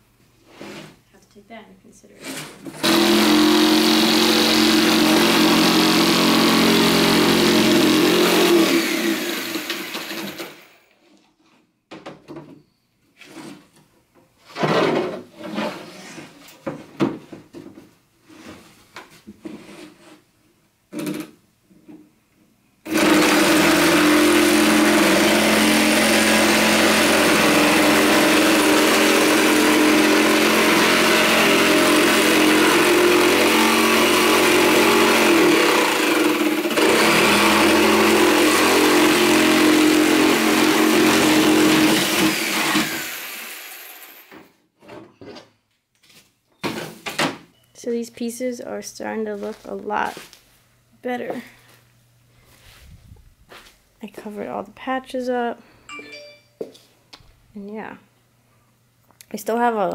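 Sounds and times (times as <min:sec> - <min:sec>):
jigsaw cutting wood: 0:02.8 - 0:10.9, 0:22.9 - 0:44.5.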